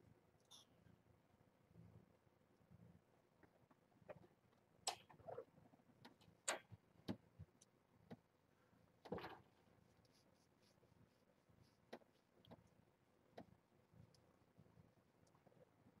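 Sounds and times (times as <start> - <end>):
faint taps and clicks: 6.0 - 8.3, 11.6 - 15.9.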